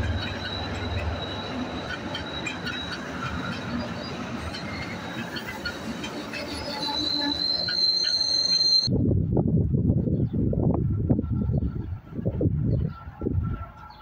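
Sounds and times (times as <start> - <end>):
high-pitched wheel squeal: 0.0 - 8.9
train rumbling along tracks: 0.0 - 14.0.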